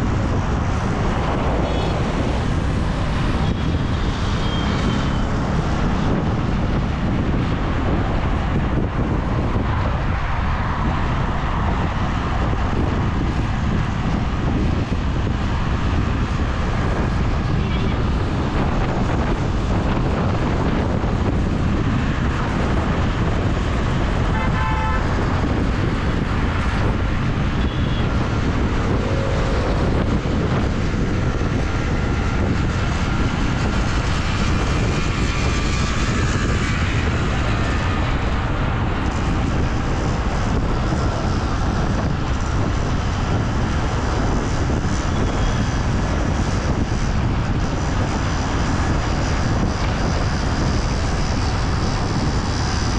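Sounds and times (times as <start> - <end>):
road and wind rumble: 0.0 - 52.9
vehicle horn toot: 24.3 - 25.0, 27.6 - 28.0.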